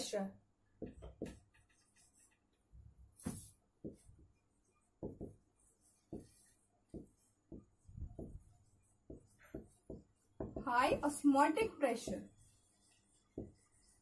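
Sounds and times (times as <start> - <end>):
marker tapping on whiteboard: 0.8 - 2.6, 3.2 - 4.4, 5.0 - 11.2, 13.2 - 14.0.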